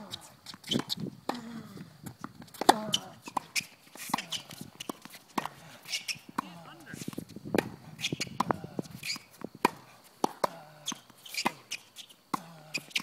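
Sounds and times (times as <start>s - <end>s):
tennis ball hits and bounces: 2.2s - 6.5s, 7.6s - 13.0s.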